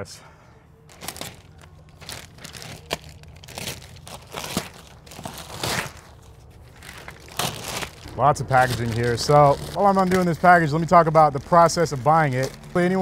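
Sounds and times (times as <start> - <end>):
scissors cutting plastic: 0.9 - 6.1, 12.0 - 13.0
plastic wrap crinkling and tearing: 0.9 - 13.0.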